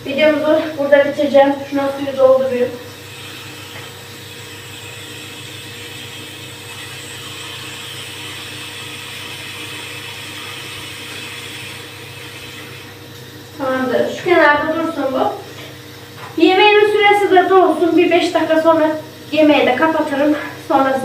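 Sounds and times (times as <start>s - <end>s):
tap running into sink: 3.2s - 4.0s.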